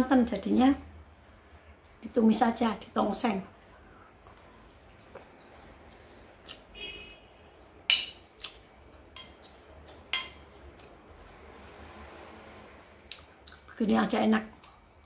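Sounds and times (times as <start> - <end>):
metal spoon clinking on ceramic bowl: 7.9 - 8.2, 9.2 - 9.4, 10.1 - 10.5.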